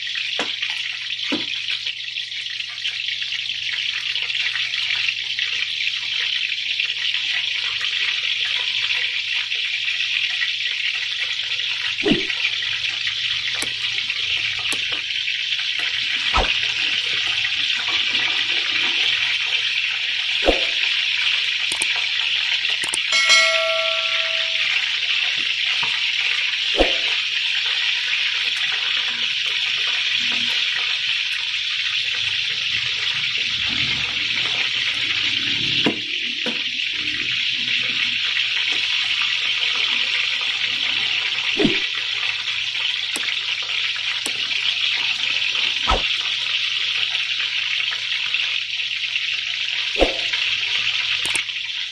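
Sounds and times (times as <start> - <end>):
oil sizzling in a frying pan: 0.0 - 22.8, 25.0 - 51.9
brief tone: 23.1 - 24.9.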